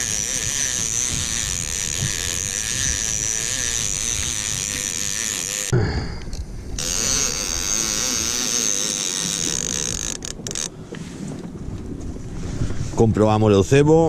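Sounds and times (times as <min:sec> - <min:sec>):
fishing reel gears whirring: 0:00.0 - 0:05.7, 0:06.3 - 0:10.7
wind noise on microphone: 0:00.0 - 0:14.0.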